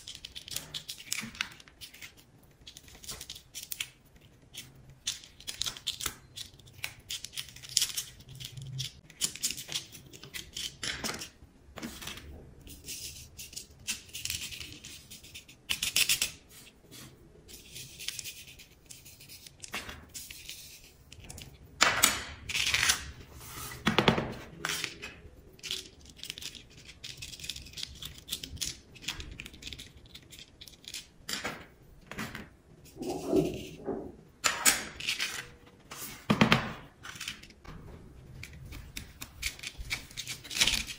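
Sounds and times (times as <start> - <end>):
wooden stick scratching card: 32.9 - 34.1.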